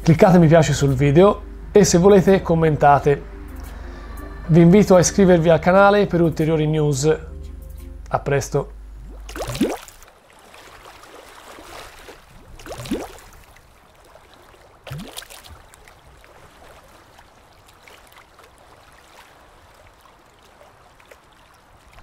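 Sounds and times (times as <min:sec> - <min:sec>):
faint water trickling: 0:00.0 - 0:22.0
water plops rising in pitch: 0:09.0 - 0:11.8, 0:12.5 - 0:13.4, 0:14.8 - 0:15.4.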